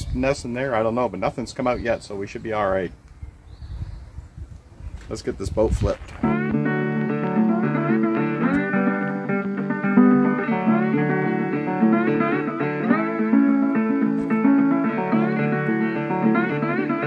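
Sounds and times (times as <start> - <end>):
guitar with sliding notes: 6.2 - 17.0.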